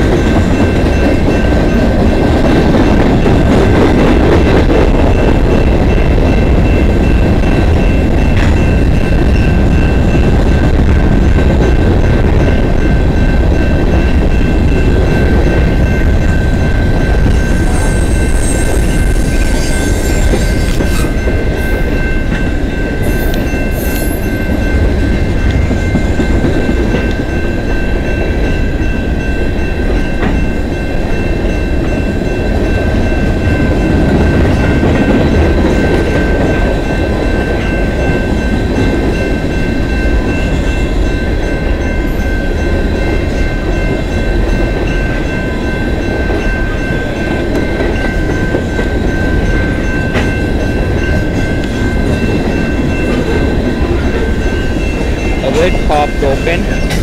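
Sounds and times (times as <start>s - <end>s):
high ringing tones: 0.0s - 57.0s
train wheels rumbling on rails: 0.0s - 57.0s
high metal scrapes: 17.6s - 21.3s.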